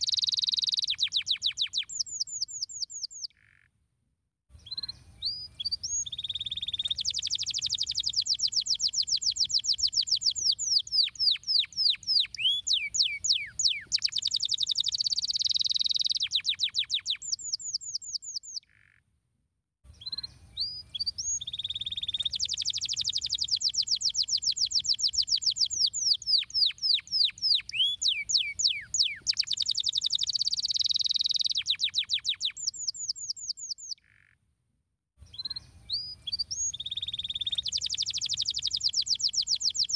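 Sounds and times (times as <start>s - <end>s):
canary singing trills: 0.0s - 3.6s, 4.6s - 18.9s, 20.0s - 34.3s, 35.3s - 39.9s.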